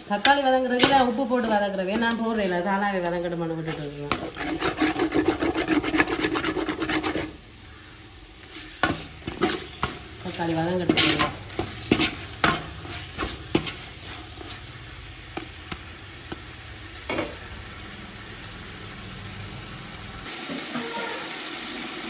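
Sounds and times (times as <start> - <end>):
food sizzling in oil: 0.0 - 22.0
metal spoon scraping pot: 3.6 - 7.4.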